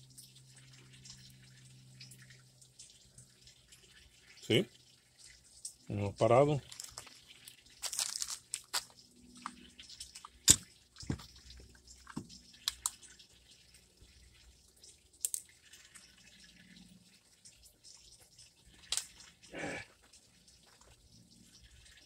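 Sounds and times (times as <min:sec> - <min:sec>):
faint water running: 0:00.0 - 0:22.0
plastic crinkling: 0:06.6 - 0:11.3.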